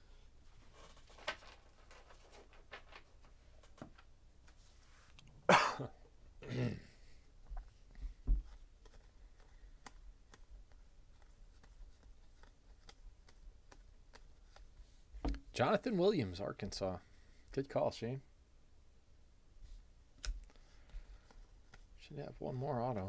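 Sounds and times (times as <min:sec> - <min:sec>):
person clearing throat: 0:05.5 - 0:07.0
person coughing: 0:05.5 - 0:07.0.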